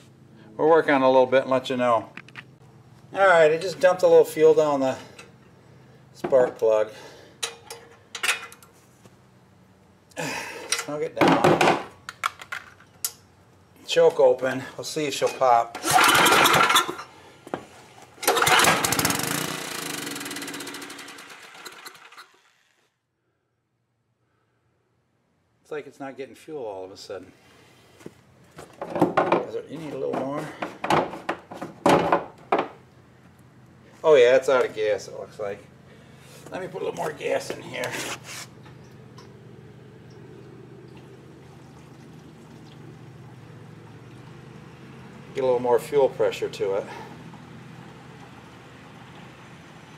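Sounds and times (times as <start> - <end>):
engine pull-start: 15.7 - 17.2, 18.1 - 22.7
gas can clatter: 15.7 - 19.2
generator engine running: 15.8 - 22.5, 34.8 - 49.9
gasoline trickling into tank: 40.2 - 45.4.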